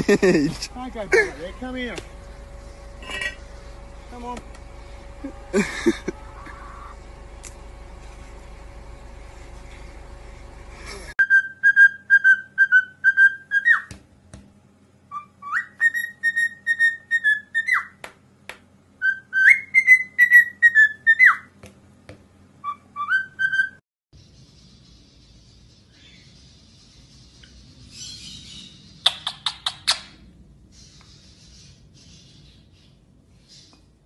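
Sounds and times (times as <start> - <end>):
cockatiel whistling: 11.2 - 13.9, 15.1 - 18.0, 19.0 - 21.5, 22.6 - 23.8.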